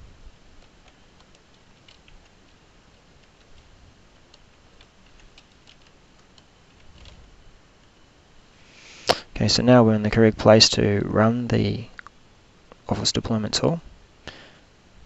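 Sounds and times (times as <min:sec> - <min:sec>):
keyboard keys typing: 0:00.6 - 0:07.2.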